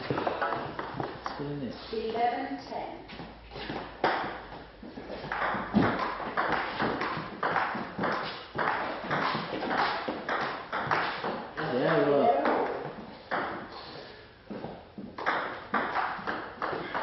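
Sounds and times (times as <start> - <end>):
table tennis ball hits: 0.0 - 1.4, 4.0 - 4.5, 5.3 - 13.7, 15.0 - 17.0.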